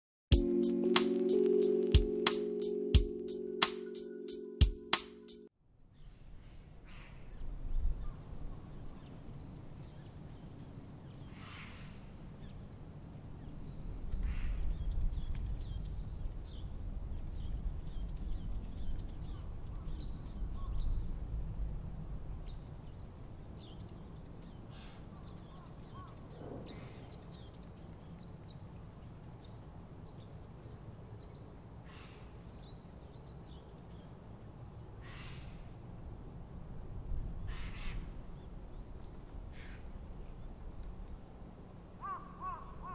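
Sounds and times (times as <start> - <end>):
low wind rumble: 11.9 - 27.9, 34.8 - 42.9
crow cawing: 42.0 - 42.9.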